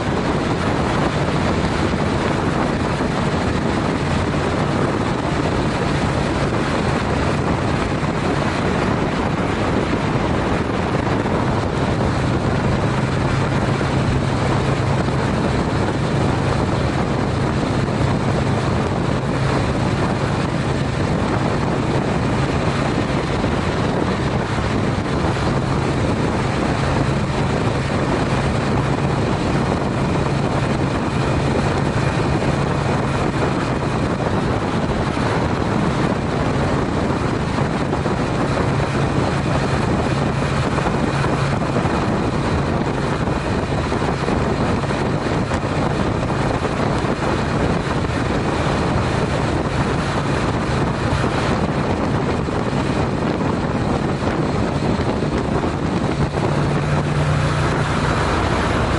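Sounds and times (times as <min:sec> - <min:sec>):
motorcycle engine droning: 0:00.0 - 0:58.9
road noise: 0:00.0 - 0:58.9
wind rush: 0:00.0 - 0:58.9.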